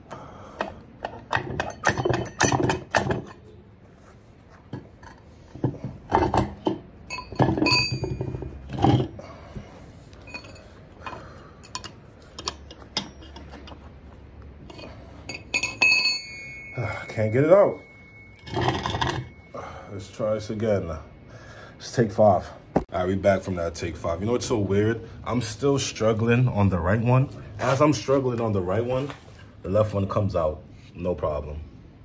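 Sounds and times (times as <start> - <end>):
metal clanks and knocks: 0.6 - 3.5, 4.7 - 9.2, 10.2 - 13.9, 14.6 - 19.4.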